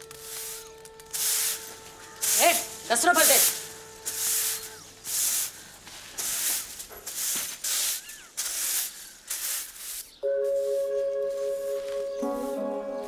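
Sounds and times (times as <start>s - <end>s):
broom sweeping dirt: 0.0s - 13.0s
faint bird chirps: 8.0s - 8.4s
background music: 10.2s - 13.0s.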